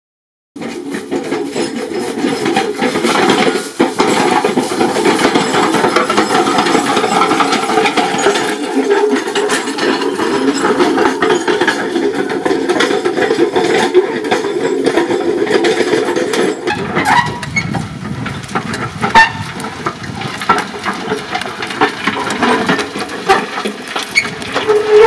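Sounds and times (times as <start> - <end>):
metal roller rattling and clanking: 0.6 - 25.0
metal chinking: 1.3 - 15.5.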